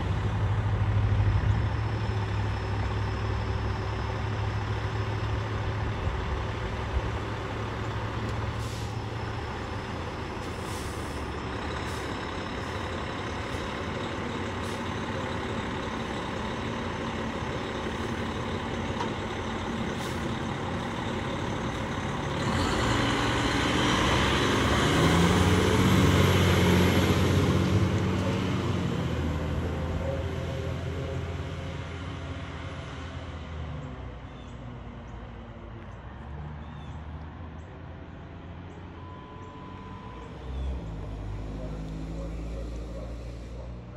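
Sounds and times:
fire engine diesel engine: 0:00.0 - 0:43.9
short air hisses: 0:08.6 - 0:09.0, 0:10.5 - 0:11.3.

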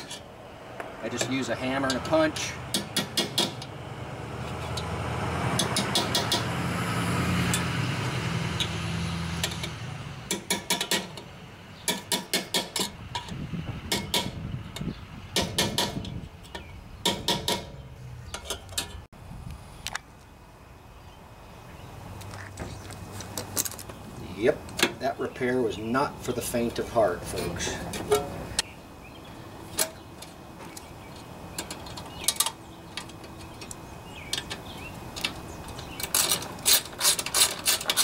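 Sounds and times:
hammer tapping steel punch: 0:02.7 - 0:03.7.

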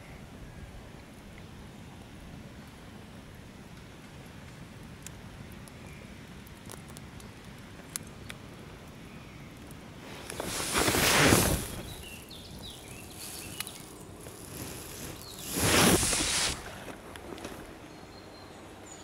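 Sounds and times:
campfire crackling and popping: 0:02.7 - 0:17.8
loud rushing rustle: 0:10.0 - 0:17.8.

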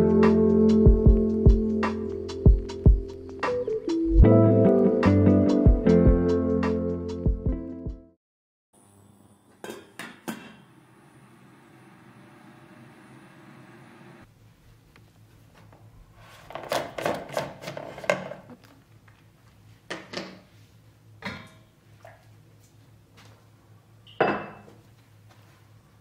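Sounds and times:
dishes clinking and knocking: 0:24.1 - 0:24.8.

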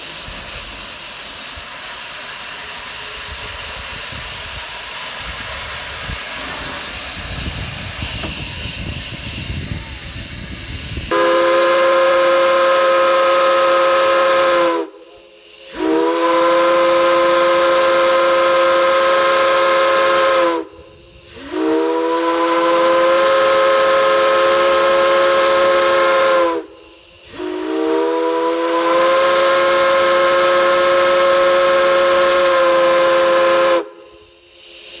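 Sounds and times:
steam locomotive whistle blasts: 0:11.0 - 0:35.0.

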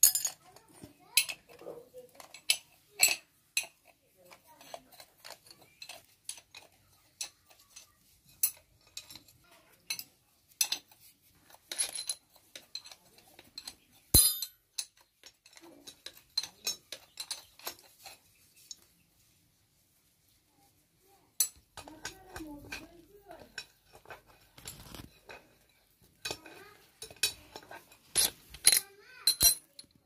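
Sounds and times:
metal clinks of spanners: 0:00.0 - 0:01.6, 0:11.7 - 0:18.2, 0:25.3 - 0:29.9.

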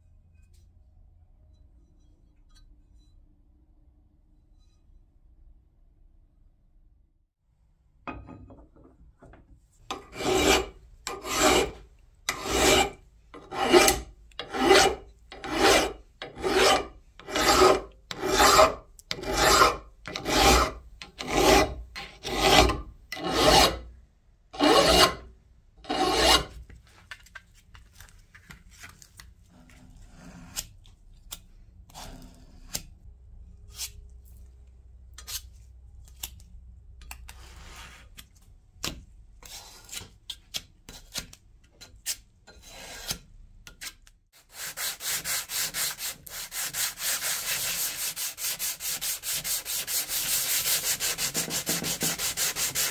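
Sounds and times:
blade scraping filler: 0:09.9 - 0:23.9, 0:41.9 - 0:52.9
round file rasping on metal: 0:09.9 - 0:23.9, 0:24.6 - 0:26.5, 0:44.4 - 0:52.9.

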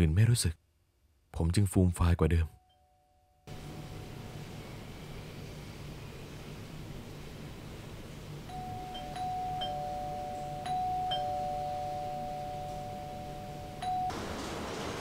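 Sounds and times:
low steady hum: 0:00.0 - 0:14.3
soft bell-like notes: 0:08.5 - 0:14.1.

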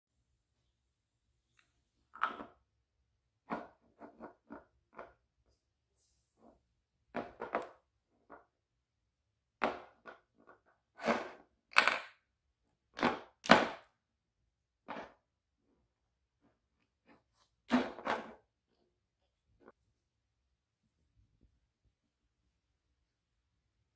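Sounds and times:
plastic balls clacking: 0:02.1 - 0:02.6, 0:09.6 - 0:12.2.

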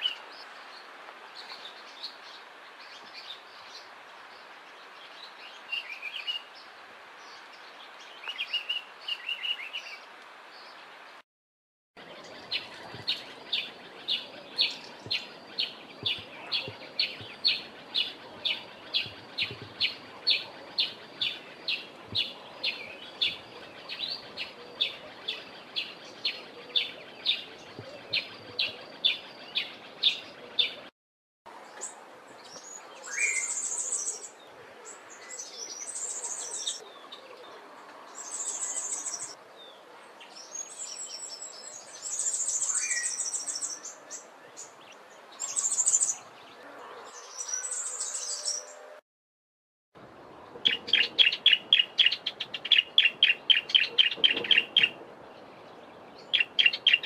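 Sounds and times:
sparrow chirping: 0:12.4 - 0:30.8, 0:35.2 - 0:36.8, 0:38.2 - 0:39.4, 0:40.6 - 0:44.7, 0:45.4 - 0:46.2, 0:47.2 - 0:48.8, 0:50.6 - 0:55.0, 0:56.2 - 0:57.0
sunbird high twittering: 0:40.8 - 0:44.0, 0:45.4 - 0:46.2.

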